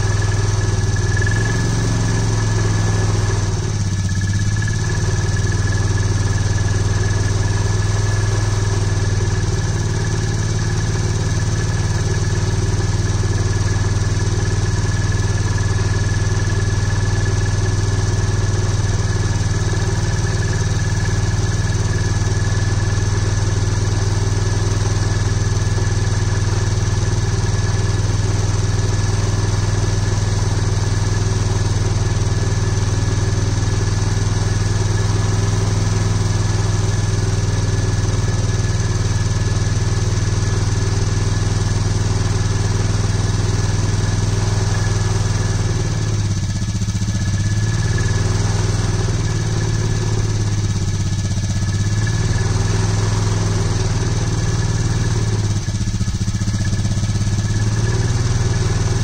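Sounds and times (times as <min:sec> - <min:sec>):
engine running at raised rpm: 0:00.0 - 0:59.0.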